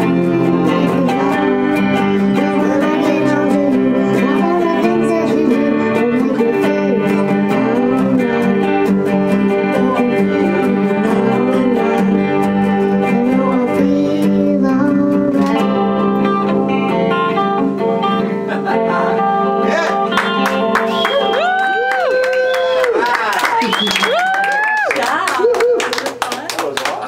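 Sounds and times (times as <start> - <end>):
girl singing: 0.0 - 16.0
acoustic guitar strumming: 0.0 - 21.4.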